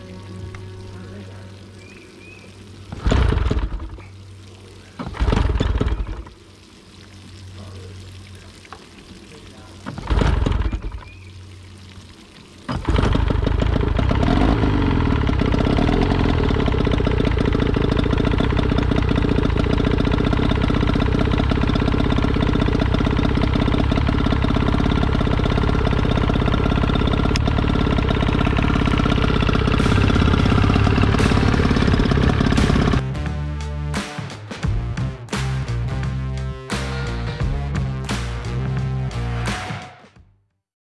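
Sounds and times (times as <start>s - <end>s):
outboard motor starting and idling: 0.0s - 6.6s, 8.7s - 11.7s, 12.6s - 33.3s.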